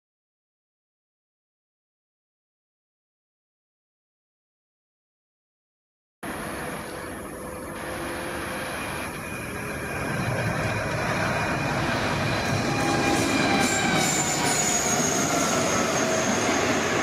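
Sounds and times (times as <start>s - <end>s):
train rumbling: 6.2s - 17.0s.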